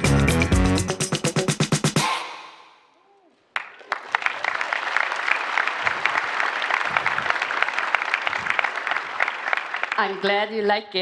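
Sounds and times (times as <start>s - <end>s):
music: 0.0s - 2.6s
audience applauding: 3.5s - 10.4s.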